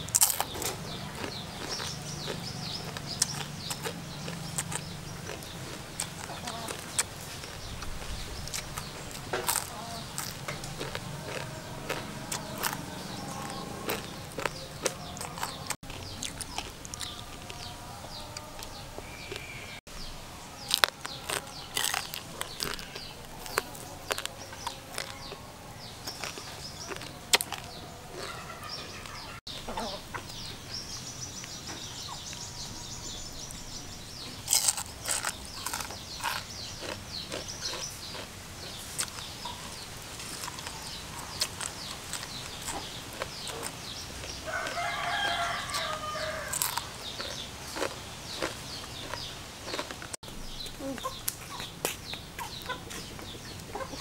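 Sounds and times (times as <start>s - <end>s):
chickens clucking: 0.0s - 19.8s, 20.6s - 33.6s, 34.2s - 54.0s
rooster crowing: 16.9s - 19.8s, 44.4s - 47.3s.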